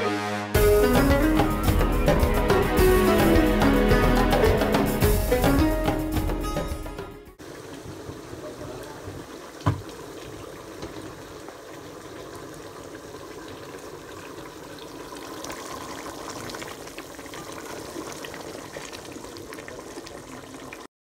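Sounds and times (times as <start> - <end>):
syrup bubbling and popping: 9.0 - 20.9.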